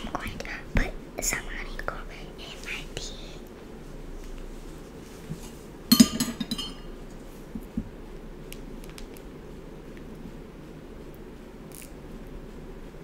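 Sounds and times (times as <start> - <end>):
metal spoon clinking on plate: 5.9 - 6.9.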